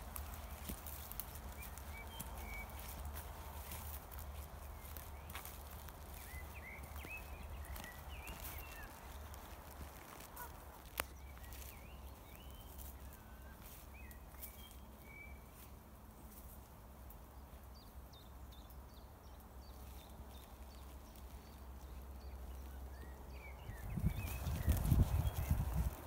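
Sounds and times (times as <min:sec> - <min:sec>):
footsteps on dry grass: 0:00.0 - 0:16.8, 0:19.7 - 0:26.0
songbirds singing: 0:00.0 - 0:26.0.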